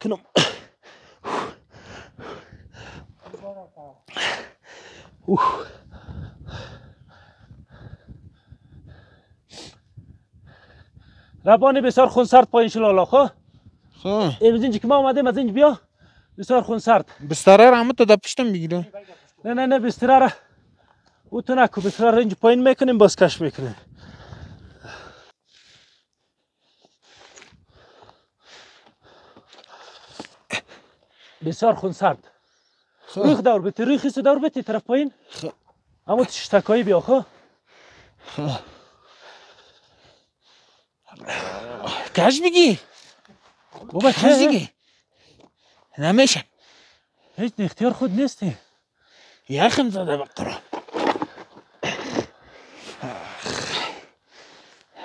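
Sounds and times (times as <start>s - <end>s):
sharp gasping breath: 0.4s - 3.2s, 4.1s - 11.4s, 23.8s - 31.4s, 37.3s - 42.1s, 46.5s - 47.4s, 48.6s - 49.5s, 51.0s - 55.0s
person breathing hard: 0.6s - 3.2s, 4.1s - 11.4s, 23.8s - 31.4s, 37.3s - 42.1s, 46.5s - 47.4s, 48.6s - 49.5s, 51.3s - 55.0s
person grunting: 41.2s - 42.1s, 53.0s - 54.0s.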